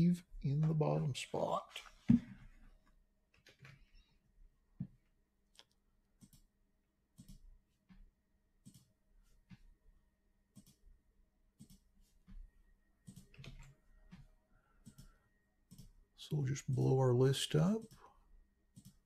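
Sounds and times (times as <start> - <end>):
computer mouse and keyboard clicks: 7.2 - 7.4, 10.6 - 10.8, 14.8 - 15.1, 18.7 - 19.0.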